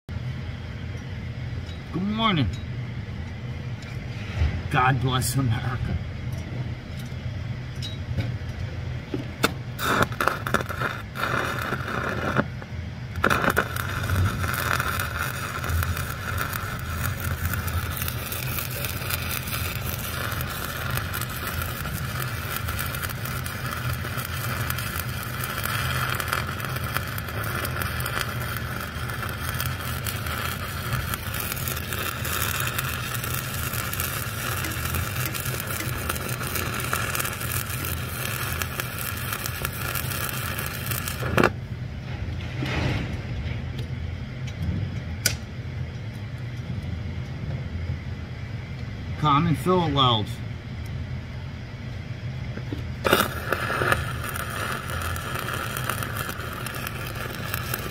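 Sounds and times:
constant low hum: 0.0 - 57.9
welding arc crackle and hiss: 9.2 - 41.6, 52.6 - 57.9.

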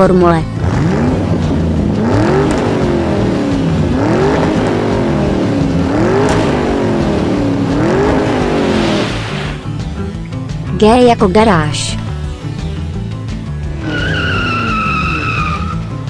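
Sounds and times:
race car engines revving past: 0.5 - 10.3, 13.4 - 16.0.

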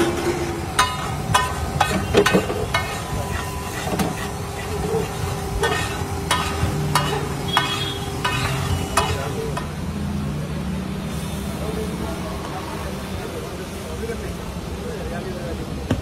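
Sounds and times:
metal spatula scraping griddle: 0.0 - 9.7
food sizzling: 0.0 - 13.0.

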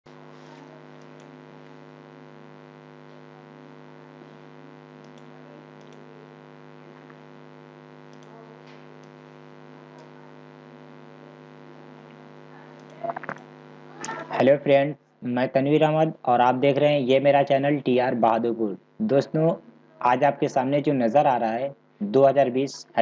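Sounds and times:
electrical hum: 0.1 - 23.0
faint clicks: 5.0 - 6.1, 8.0 - 9.2.

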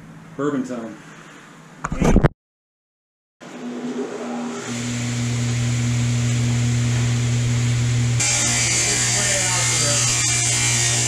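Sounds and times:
table saw motor humming: 3.5 - 11.0.

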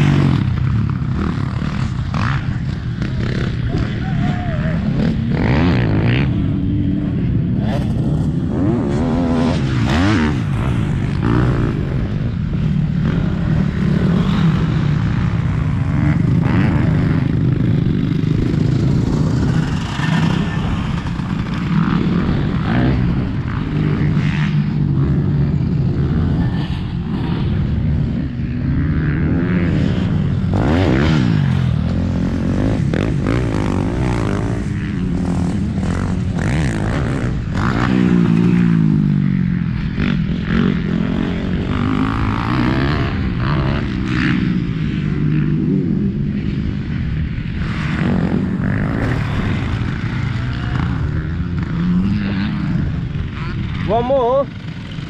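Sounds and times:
motocross bike engines revving: 0.0 - 55.0.

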